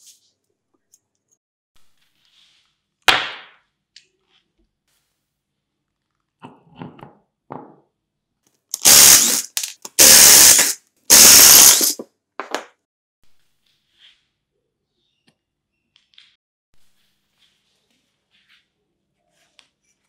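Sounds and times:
power tool bursts: 8.8s - 12.0s.

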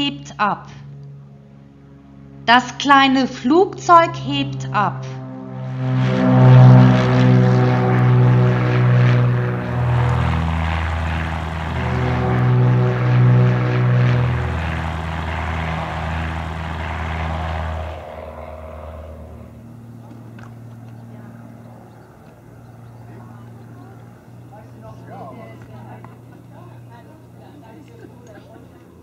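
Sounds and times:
propeller airplane taking off: 0.7s - 2.4s, 3.3s - 29.0s.

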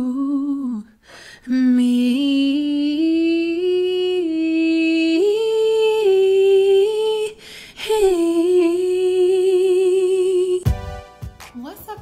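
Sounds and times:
woman singing without words: 0.0s - 11.0s.

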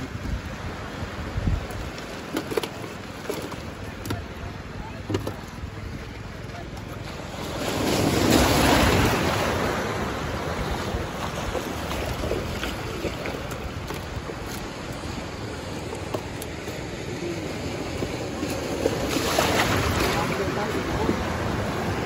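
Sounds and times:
wind buffeting microphone: 0.0s - 2.2s
sea surf washing onto beach: 0.0s - 22.0s.

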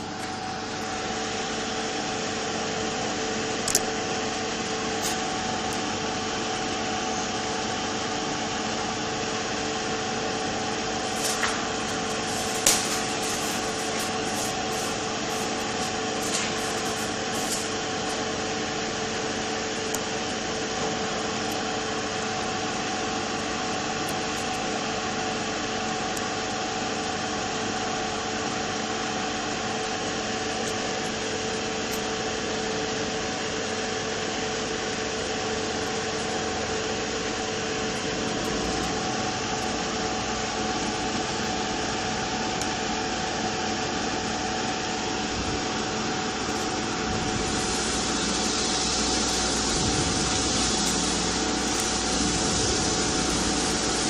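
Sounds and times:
electric fan whirring: 0.0s - 54.0s.

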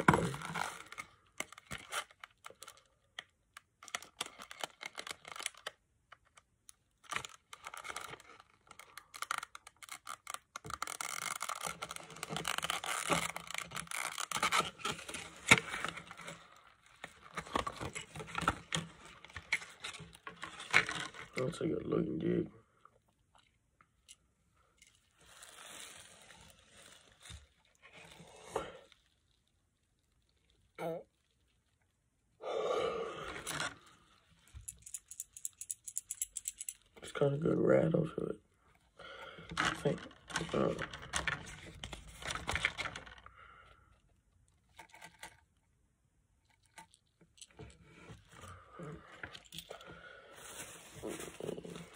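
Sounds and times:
plastic packaging crinkling: 3.8s - 5.8s, 7.0s - 21.4s, 24.9s - 28.2s, 48.2s - 51.9s.

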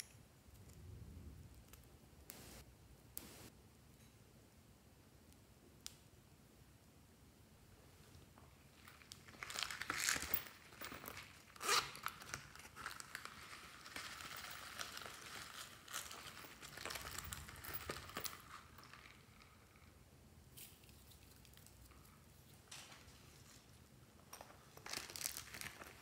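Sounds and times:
packet crinkling: 24.8s - 26.0s.

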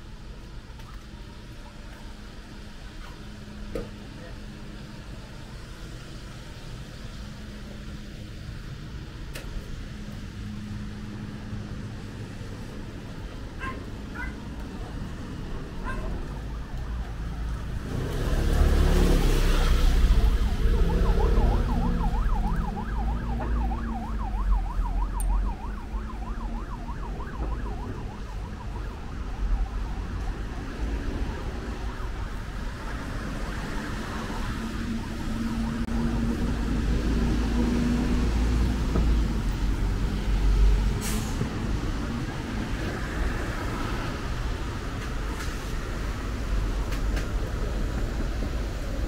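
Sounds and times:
passing traffic rumble: 0.0s - 49.0s
emergency siren warbling yelp: 15.6s - 36.3s.

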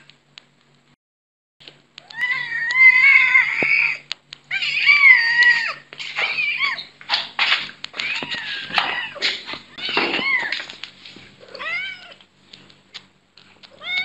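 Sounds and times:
cat yowling: 2.1s - 6.9s, 11.4s - 12.2s.

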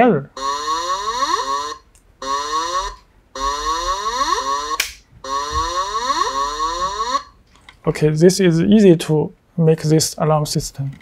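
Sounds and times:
electronic alarm tone with rising pitch: 0.4s - 7.4s
sharp click: 4.8s - 5.0s.

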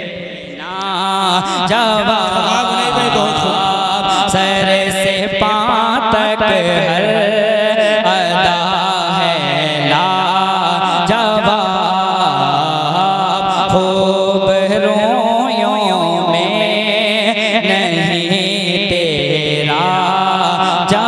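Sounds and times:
man singing ornamented melody: 0.0s - 5.4s
steady held drone: 0.2s - 5.1s.

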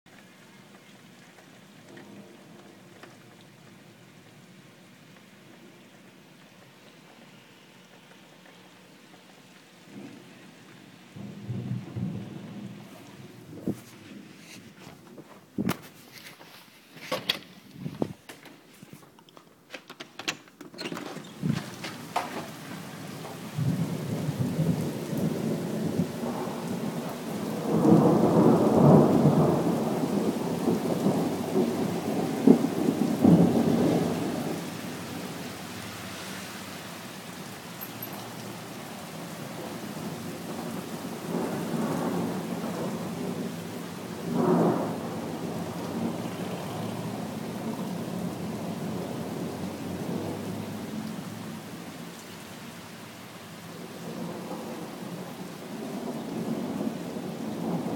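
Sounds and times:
steady rain: 0.1s - 57.9s
thunder rumbling: 8.9s - 16.2s, 21.1s - 35.5s, 38.1s - 51.7s, 53.7s - 57.9s
thunder cracks: 11.1s - 14.6s, 21.3s - 35.4s, 39.6s - 46.3s, 55.8s - 57.9s.

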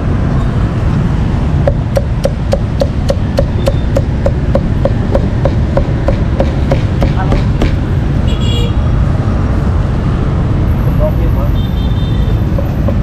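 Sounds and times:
cleaver chopping meat on block: 1.7s - 7.8s.

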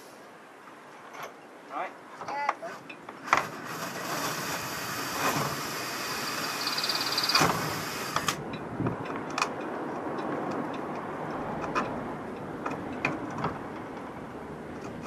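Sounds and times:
hand tools clicking and knocking: 7.2s - 14.1s, 14.7s - 15.0s.

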